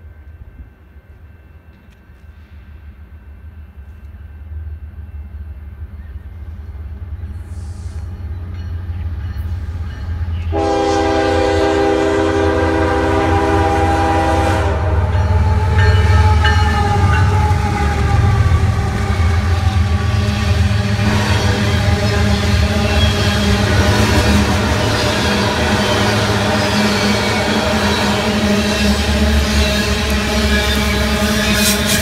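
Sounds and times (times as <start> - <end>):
diesel locomotives rumbling: 0.0 - 32.0
train air horn: 10.5 - 32.0.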